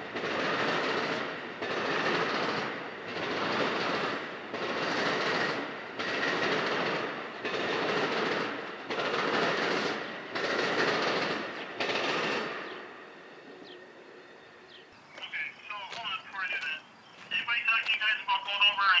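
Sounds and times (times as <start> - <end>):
train wheels clattering: 0.0 - 13.1.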